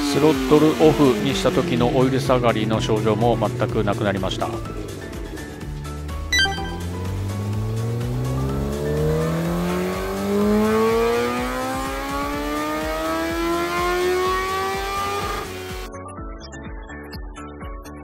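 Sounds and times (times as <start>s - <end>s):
motorcycle engine revving: 7.0s - 15.9s.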